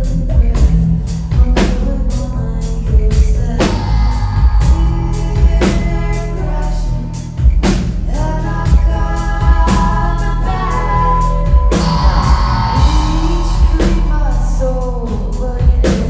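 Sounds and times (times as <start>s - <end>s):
rock band playing live: 0.0s - 16.0s
crashing drum hits: 11.6s - 14.6s.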